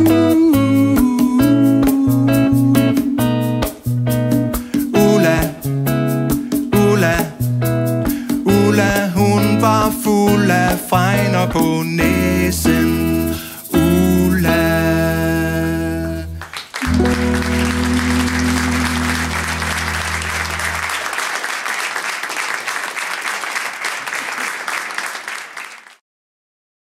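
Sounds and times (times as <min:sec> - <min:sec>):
live band playing: 0:00.0 - 0:21.1
audience applause: 0:16.4 - 0:26.0.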